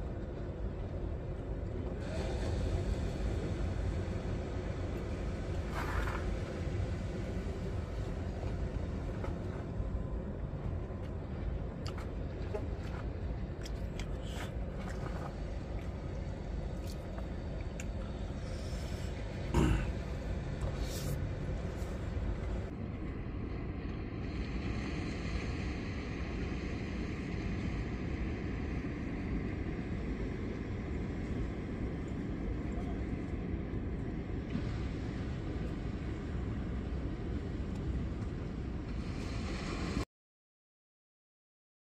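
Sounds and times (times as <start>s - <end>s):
ocean surf hissing: 1.9s - 9.2s, 18.0s - 22.7s, 38.8s - 40.0s.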